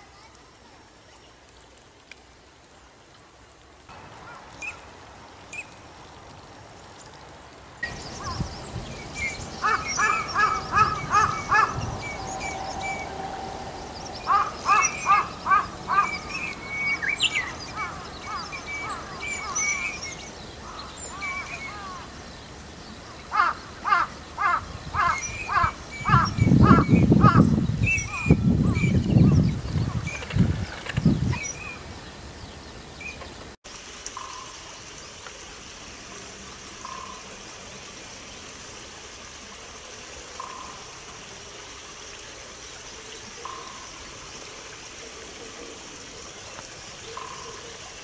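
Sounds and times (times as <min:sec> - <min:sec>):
teal whistling calls: 0:07.8 - 0:22.1
low rumble: 0:10.6 - 0:14.7.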